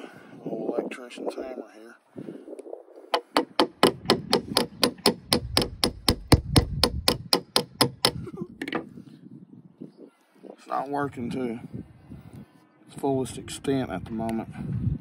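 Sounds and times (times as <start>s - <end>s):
hammer tapping metal punch: 3.2s - 8.2s.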